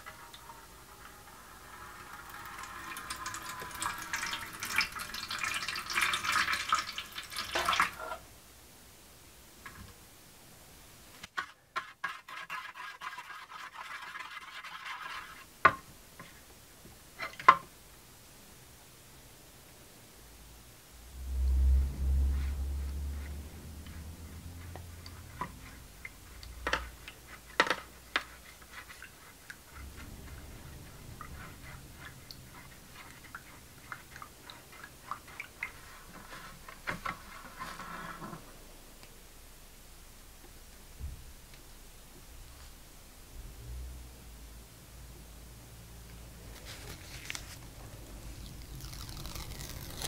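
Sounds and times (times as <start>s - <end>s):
spoon scraping plastic tray: 32.0s - 38.4s.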